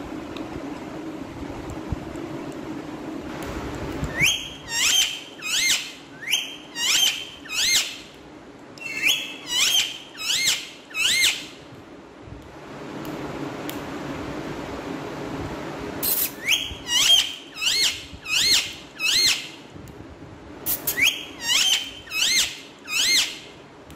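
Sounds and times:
parakeet calling: 0:04.1 - 0:08.1, 0:08.8 - 0:11.6, 0:16.0 - 0:19.6, 0:20.7 - 0:23.5.

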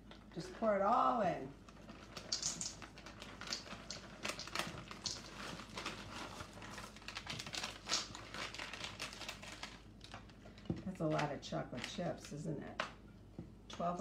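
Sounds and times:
bag crinkling: 0:01.6 - 0:11.2
chips pattering into metal bowl: 0:02.0 - 0:09.8.

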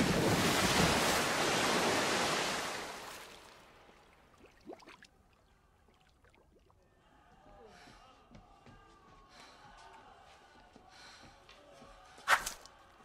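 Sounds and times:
large splash into pool: 0:00.0 - 0:03.4.

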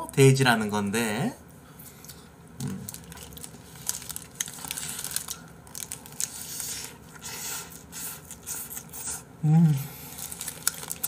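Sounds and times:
paper wrapper crinkling: 0:02.6 - 0:08.9, 0:10.0 - 0:11.0.

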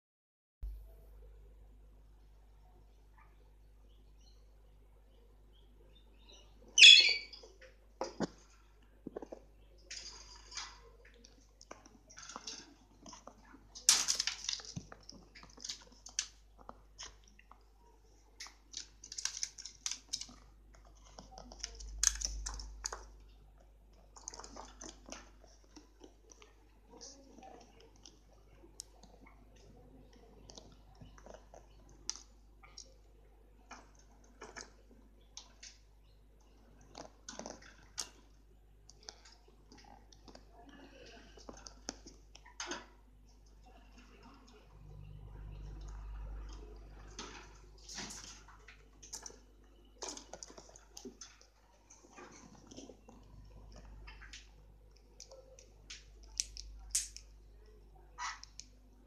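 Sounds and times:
budgerigar husking seeds: 0:06.7 - 0:07.5
bird cracking seeds: 0:13.8 - 0:16.4, 0:18.4 - 0:20.4.

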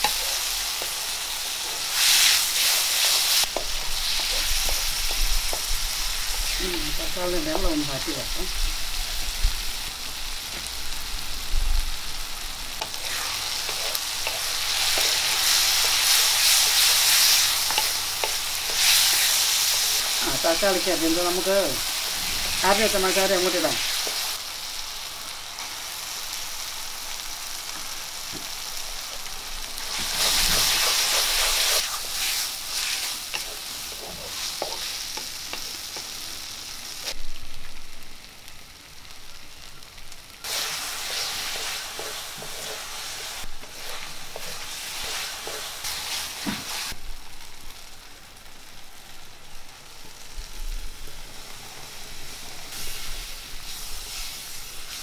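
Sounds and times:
food sizzling in oil: 0:00.0 - 0:55.0.

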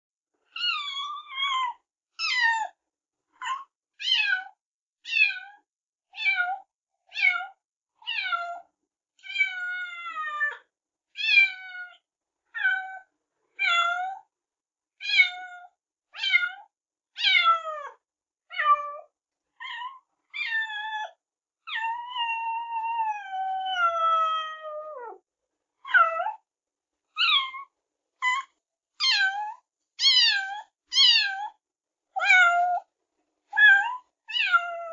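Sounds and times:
cat meowing: 0:15.0 - 0:21.1, 0:21.7 - 0:25.2, 0:27.2 - 0:31.6, 0:33.6 - 0:34.9.

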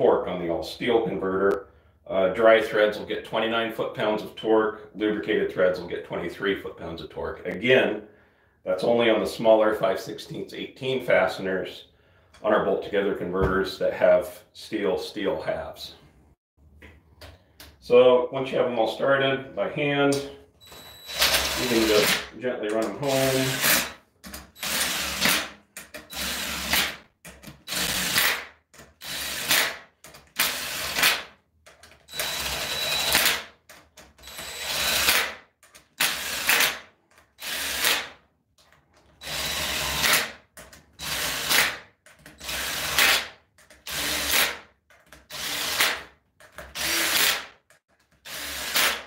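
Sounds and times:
cordless drill driving bolts: 0:20.6 - 0:33.5, 0:34.1 - 0:35.4, 0:36.0 - 0:38.1, 0:39.1 - 0:40.4, 0:41.0 - 0:44.6, 0:45.3 - 0:47.5, 0:48.2 - 0:49.0.

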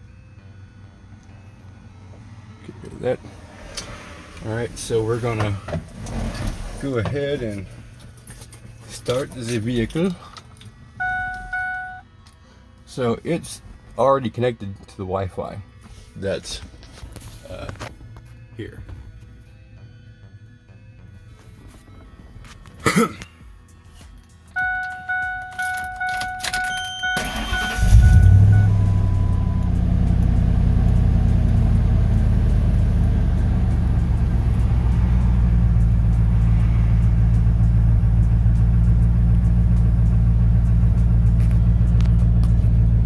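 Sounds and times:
electronic warning beeps: 0:11.0 - 0:12.0, 0:24.5 - 0:30.2
engine idling: 0:27.0 - 0:43.0.

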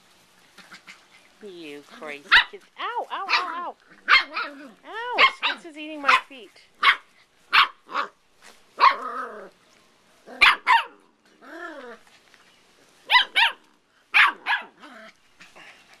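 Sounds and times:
puppies yapping: 0:02.0 - 0:09.6, 0:10.3 - 0:16.0
puppy growling: 0:03.0 - 0:05.6, 0:08.8 - 0:09.6, 0:10.2 - 0:12.2, 0:14.3 - 0:16.0.

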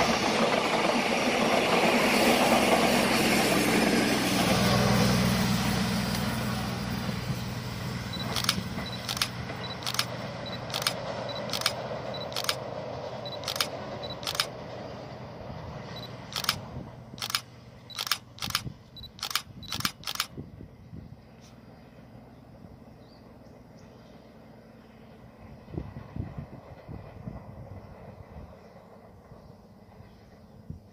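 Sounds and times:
diesel train engine and wheels: 0:00.0 - 0:30.9
sharp high clicks: 0:08.2 - 0:12.6, 0:13.3 - 0:14.5, 0:16.0 - 0:20.3.

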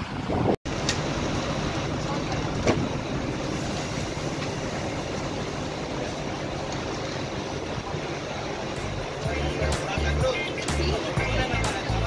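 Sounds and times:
bus engine idling: 0:00.0 - 0:12.0
outdoor noise: 0:00.0 - 0:12.0.

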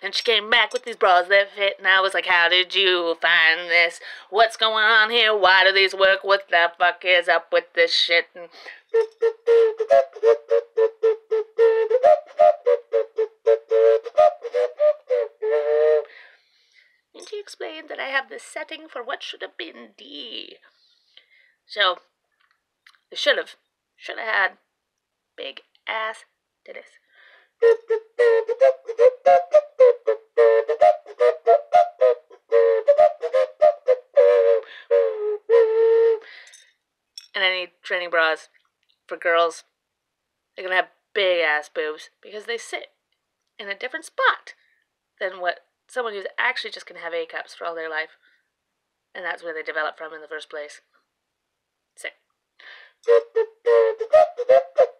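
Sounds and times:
tune blown through novelty prop: 0:08.9 - 0:16.0, 0:27.6 - 0:36.2, 0:53.1 - 0:54.9
reedy whistle-like toots: 0:08.9 - 0:16.2, 0:27.6 - 0:36.6, 0:53.0 - 0:54.9.

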